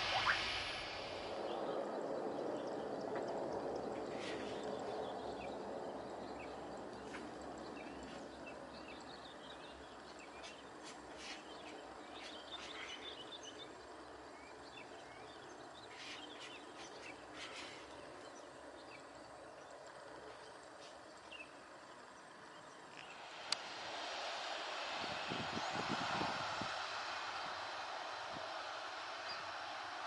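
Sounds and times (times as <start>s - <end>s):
small birds chirping: 0.0s - 23.2s
jet airliner engines: 0.0s - 30.0s.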